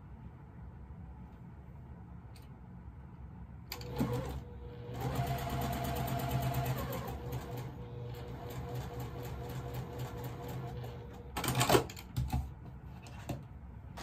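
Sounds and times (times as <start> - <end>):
sewing machine stitching: 3.7 - 11.9.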